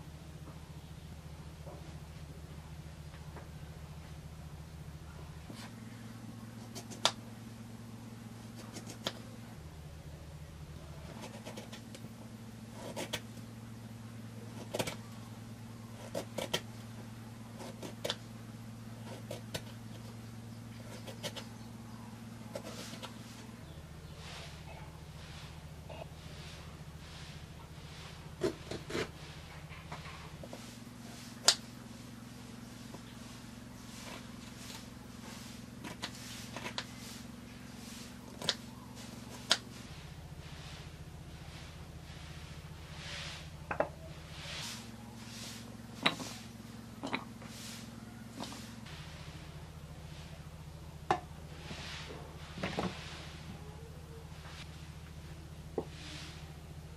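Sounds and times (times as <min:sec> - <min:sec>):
steady low hum: 0:00.0 - 0:56.9
knife cutting on wooden board: 0:08.5 - 0:09.2, 0:11.1 - 0:12.0, 0:12.7 - 0:13.3, 0:14.5 - 0:15.1, 0:15.9 - 0:16.7, 0:17.6 - 0:18.2, 0:19.0 - 0:20.1, 0:20.8 - 0:21.5, 0:22.5 - 0:23.2, 0:28.4 - 0:29.2
knife chopping on wooden board: 0:12.8 - 0:13.2, 0:16.0 - 0:16.7, 0:17.6 - 0:18.2.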